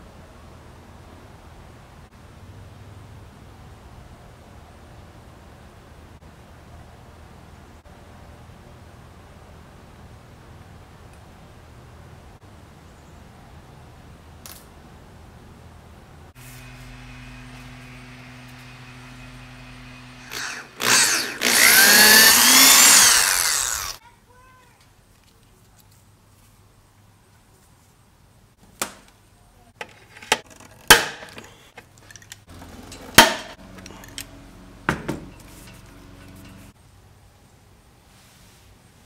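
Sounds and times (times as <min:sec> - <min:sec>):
handheld power tool running: 0:16.4 - 0:24.0.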